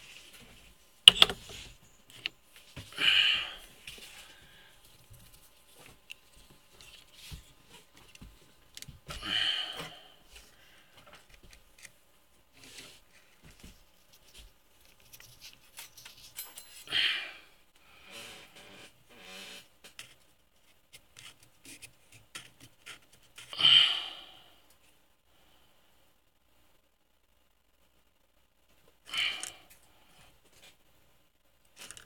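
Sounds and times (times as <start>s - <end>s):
metal parts clicking and tapping: 1.1s - 1.5s.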